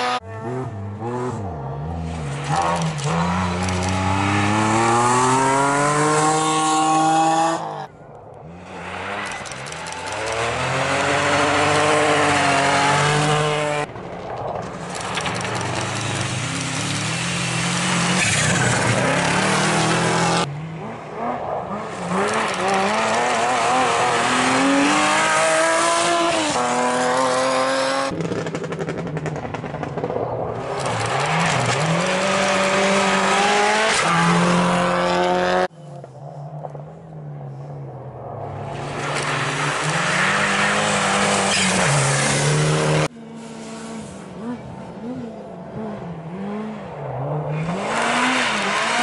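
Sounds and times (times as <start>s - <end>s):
rally car engines revving hard: 0.0s - 7.9s, 8.7s - 13.9s, 15.4s - 35.7s, 38.7s - 49.0s.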